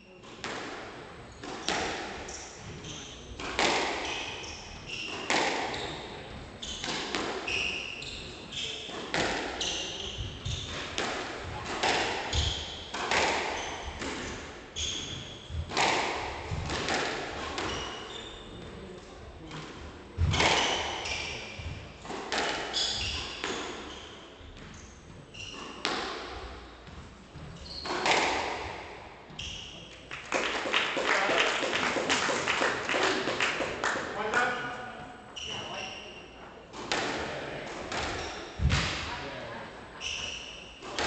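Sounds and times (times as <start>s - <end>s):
squash ball hitting rackets and walls: 0.2s - 34.8s, 36.7s - 39.3s, 40.0s - 41.0s
shoes squeaking on wooden floor: 17.6s - 18.6s, 22.7s - 28.4s, 35.4s - 36.4s, 40.0s - 41.0s.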